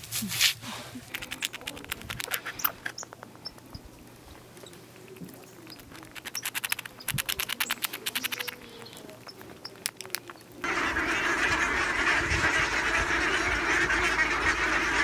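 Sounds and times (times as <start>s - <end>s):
squirrel gnawing and chewing: 0.9s - 10.7s.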